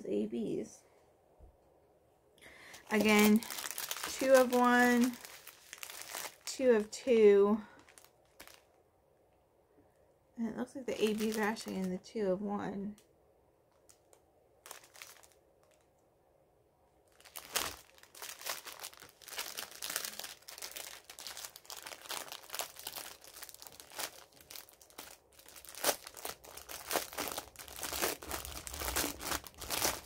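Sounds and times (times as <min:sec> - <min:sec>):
plastic bag crinkling and rustling: 0:02.6 - 0:08.8, 0:10.9 - 0:12.2, 0:13.7 - 0:15.9, 0:17.0 - 0:30.0.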